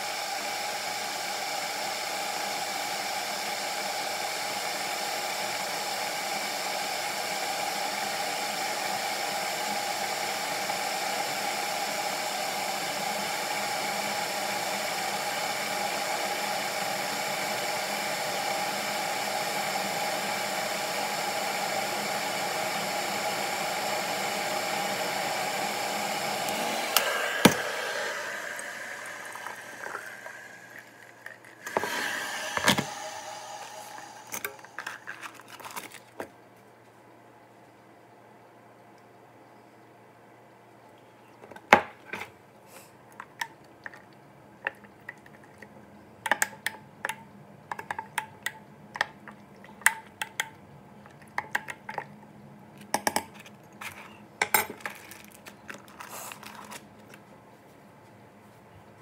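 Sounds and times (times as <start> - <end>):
hair dryer running: 0.0 - 35.1.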